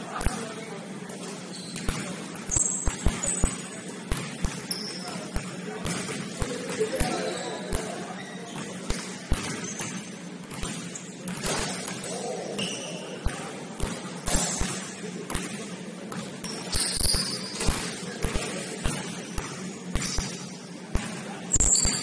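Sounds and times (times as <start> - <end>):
sneaker squeaks: 1.2 - 15.4, 16.1 - 22.0
basketball bouncing on wood floor: 1.8 - 7.1, 8.5 - 12.0.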